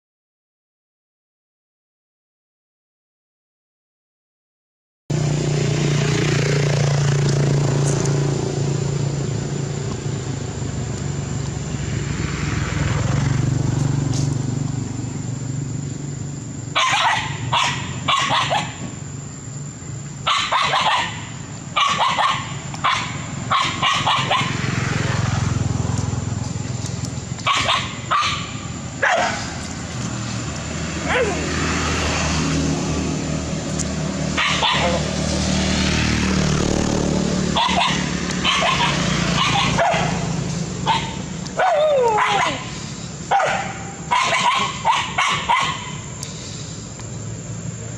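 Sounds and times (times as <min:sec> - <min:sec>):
dogs barking: 0:16.7 - 0:18.9, 0:20.2 - 0:24.9, 0:27.4 - 0:29.8, 0:30.9 - 0:31.8, 0:34.3 - 0:35.3, 0:37.5 - 0:46.2
low rumble: 0:36.2 - 0:37.6.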